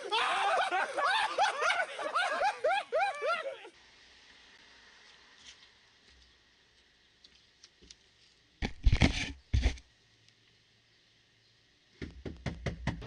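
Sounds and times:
handling noise on microphone: 8.6s - 9.8s.

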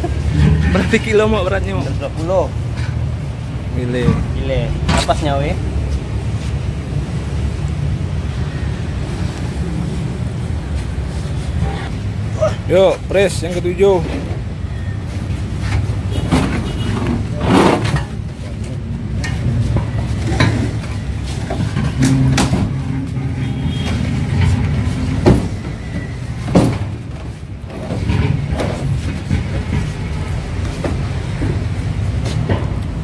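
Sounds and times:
heavy metal knocks and clunks: 19.1s - 33.0s.

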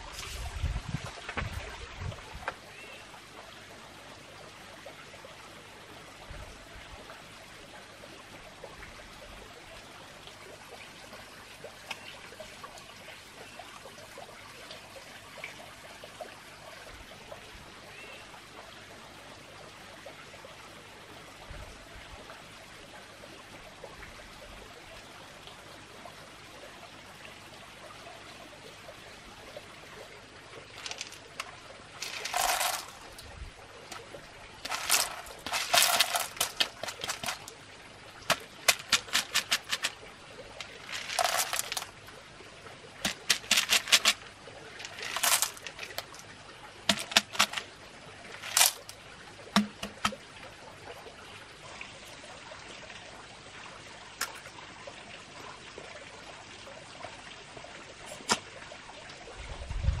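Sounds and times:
snail shells rattling in basket: 30.8s - 33.1s, 34.6s - 37.5s, 38.3s - 40.0s, 40.6s - 41.9s, 43.0s - 44.2s, 44.8s - 46.2s, 46.9s - 47.7s, 48.4s - 49.0s.

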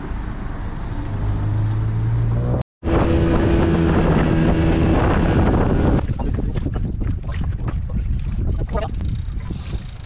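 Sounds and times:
wind on microphone: 2.8s - 10.0s.

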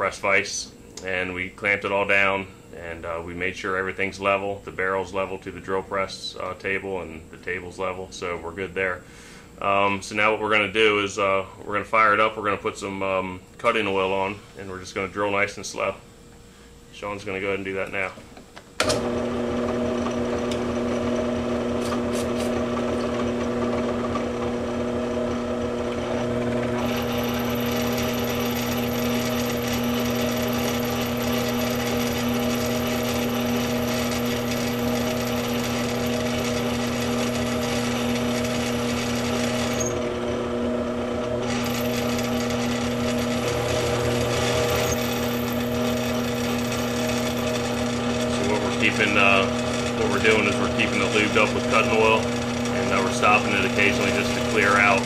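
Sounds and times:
drill press motor hum: 18.4s - 55.0s
drill bit hissing through metal: 26.8s - 40.1s, 41.4s - 55.0s.

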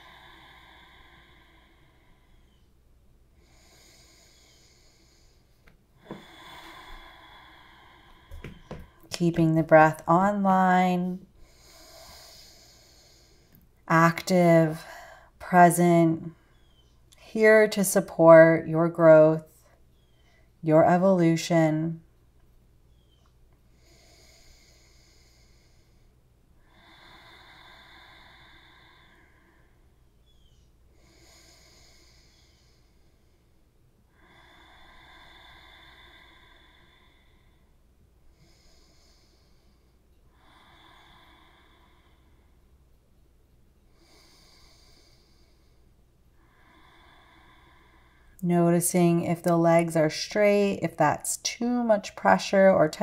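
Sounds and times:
person breathing slowly: 0.0s - 2.8s, 3.4s - 9.2s, 11.2s - 13.8s, 22.9s - 42.9s, 43.9s - 48.4s.

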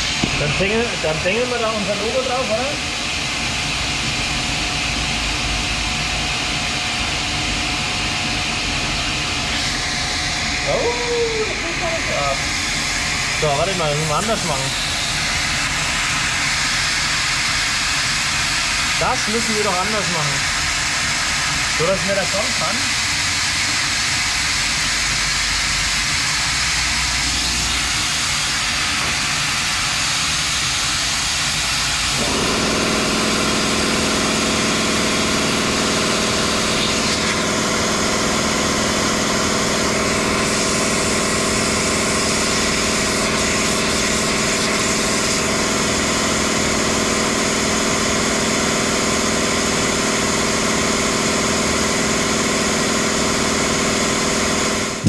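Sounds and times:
multi-tone hum: 0.0s - 29.6s
laser engraver hissing: 0.0s - 55.0s.

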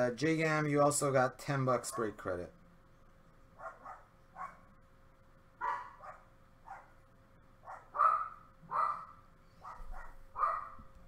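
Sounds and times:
faint steady hum: 0.0s - 11.0s
dog barking: 1.9s - 2.2s, 3.6s - 4.7s, 5.6s - 7.0s, 7.6s - 10.9s.

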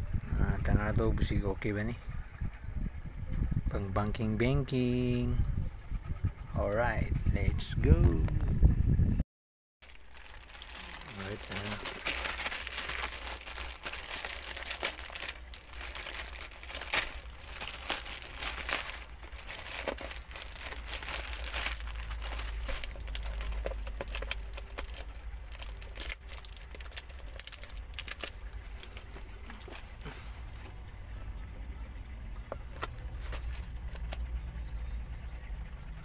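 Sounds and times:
plastic bag crinkling: 9.8s - 30.7s, 32.4s - 34.4s.

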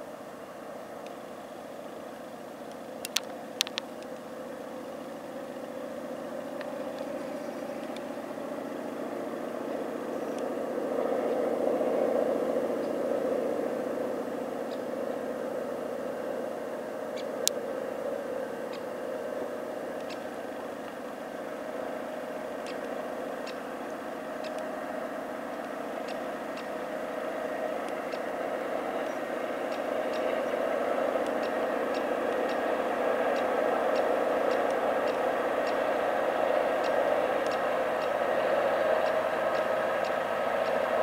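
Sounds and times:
diesel locomotive engine running: 0.0s - 41.0s
faint sharp clicks: 1.0s - 1.2s, 2.7s - 4.3s, 24.4s - 24.7s, 36.8s - 38.1s.

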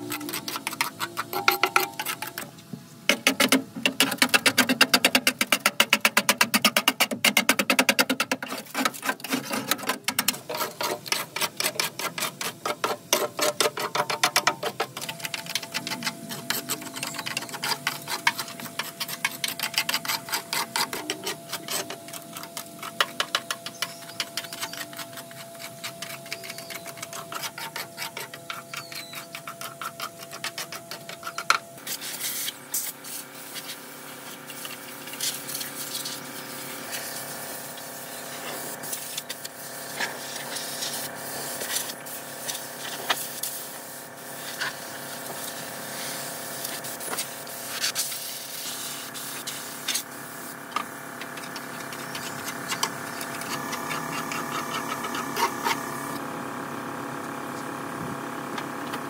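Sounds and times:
thin steady whine: 0.0s - 2.8s, 12.9s - 38.4s
small motor humming: 49.8s - 59.0s.

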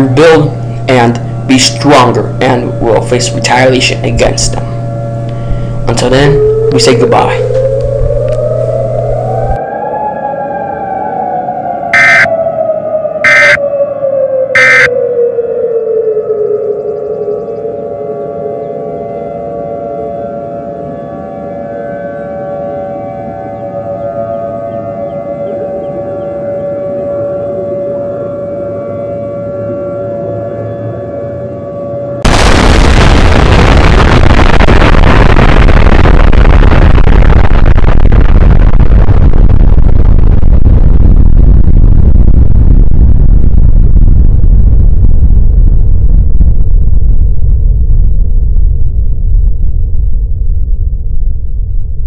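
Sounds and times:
low rumble: 0.0s - 10.6s, 32.2s - 52.0s
siren wailing: 0.0s - 42.4s.

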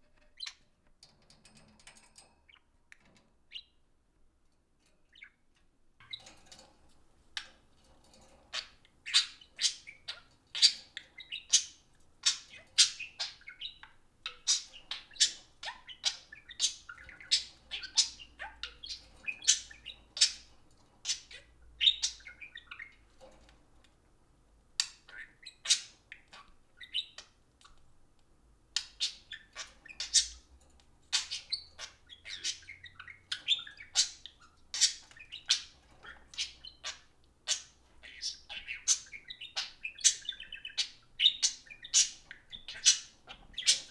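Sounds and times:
budgerigars chattering: 8.5s - 23.0s, 28.8s - 30.5s, 31.1s - 43.9s.

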